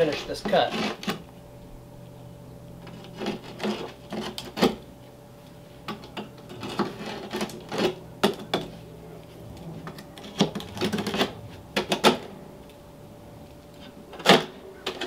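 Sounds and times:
utility knife scraping board: 0.1 - 1.2, 2.8 - 4.8, 6.5 - 8.0, 9.6 - 12.3.

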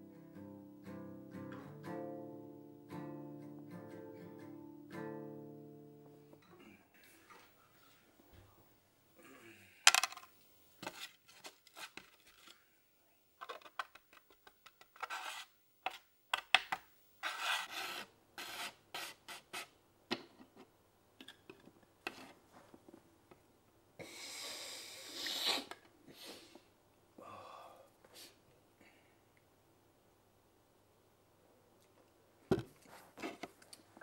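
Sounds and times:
card scraping hard surface: 10.8 - 12.6, 14.7 - 16.0, 17.2 - 19.7
sharp nasal sniff: 24.0 - 26.6.

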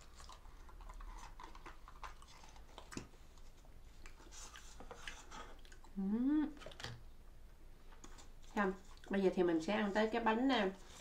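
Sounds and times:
faint chewing: 0.0 - 7.1, 7.8 - 9.2.

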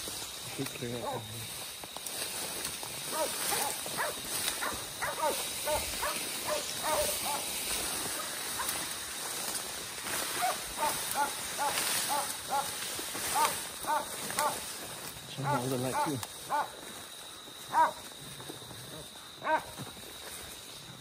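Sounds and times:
dogs barking: 1.0 - 1.2, 3.1 - 8.9, 10.3 - 14.6, 15.4 - 16.8, 17.7 - 18.0, 19.4 - 19.8.

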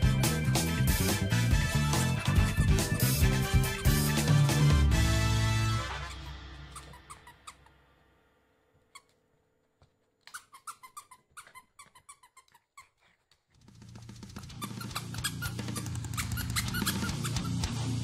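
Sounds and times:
background music: 0.0 - 7.3
dog toy squeaks: 6.1 - 7.7, 8.9 - 9.2, 10.2 - 13.0, 14.5 - 17.7.

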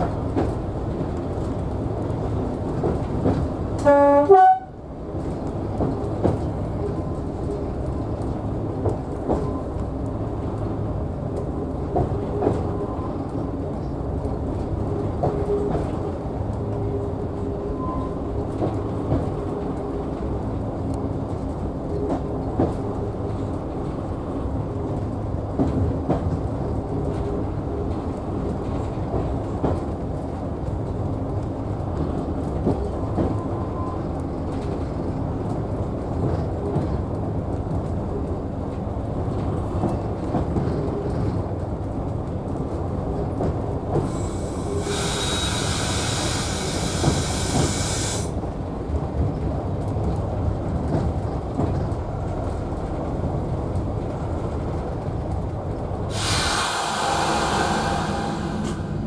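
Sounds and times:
train diesel engine rumble: 0.0 - 59.0
loud hiss: 44.1 - 48.3, 56.1 - 59.0.

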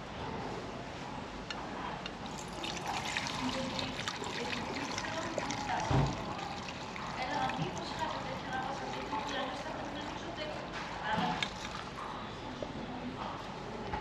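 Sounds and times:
liquid trickling into a bottle: 2.2 - 12.2.

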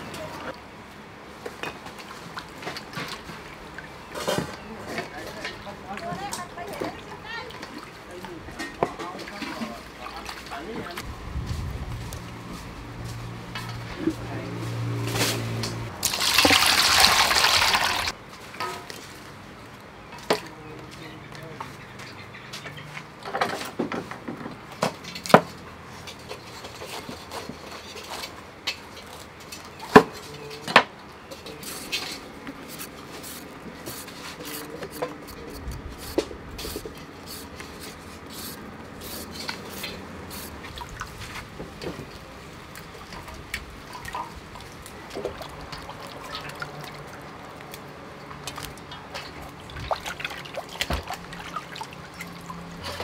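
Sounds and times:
blade peeling carrot: 32.6 - 40.6.

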